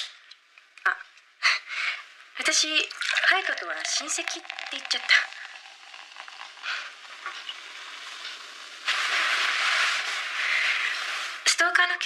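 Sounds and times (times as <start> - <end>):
food sizzling in a frying pan: 2.7 - 12.0.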